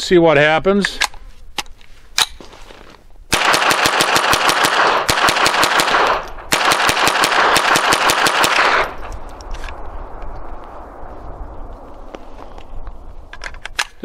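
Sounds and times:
rapid rifle gunshots: 3.3s - 9.1s.

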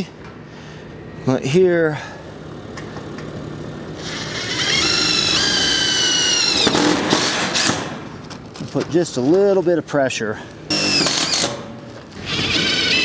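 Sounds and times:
drill motor whine: 4.0s - 6.9s, 10.7s - 11.5s, 12.2s - 13.0s.

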